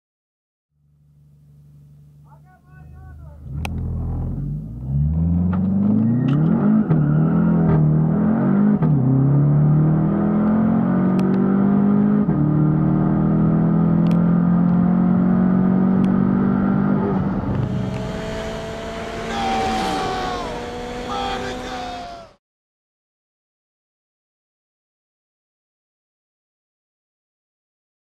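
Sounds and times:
car engine revving at full throttle: 3.4s - 22.4s.

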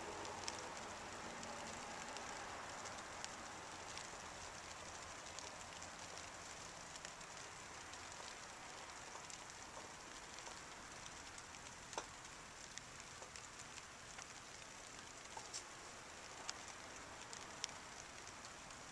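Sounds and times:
light ticks: 0.1s - 18.9s.

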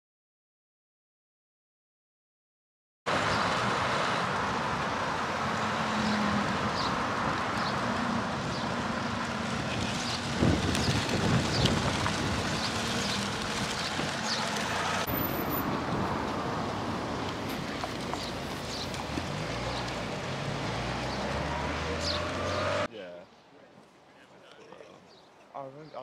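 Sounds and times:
vehicle engine passing slowly: 3.1s - 22.9s
wind noise on microphone: 9.5s - 14.4s.

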